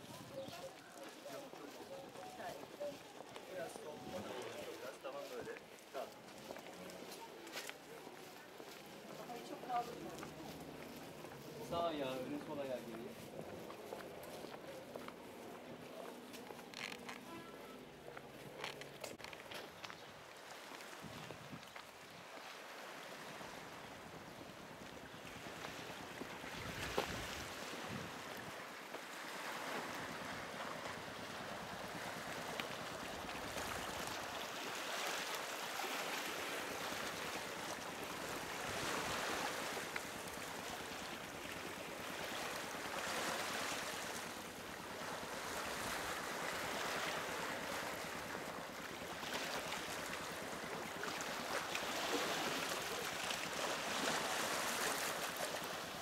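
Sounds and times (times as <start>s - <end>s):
waves washing onto pebbles: 25.3s - 56.0s.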